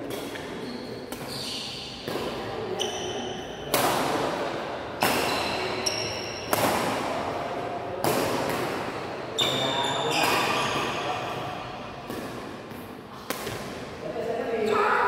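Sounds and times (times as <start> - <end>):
racket hitting shuttlecock: 0.0 - 1.3, 2.0 - 3.1, 3.7 - 9.6, 10.2 - 13.9
shoes squeaking on court: 0.0 - 3.7, 5.1 - 6.5, 9.4 - 11.3.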